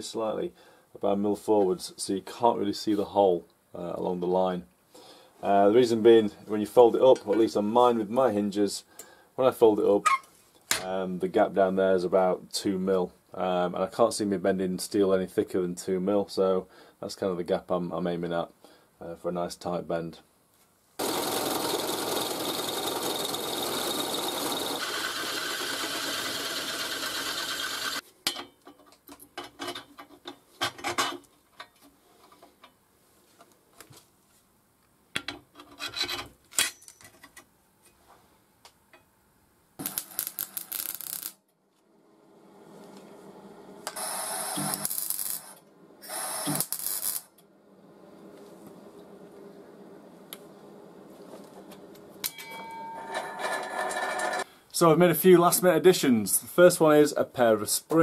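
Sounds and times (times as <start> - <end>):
drill press boring steel: 21.0 - 28.0, 43.9 - 47.2.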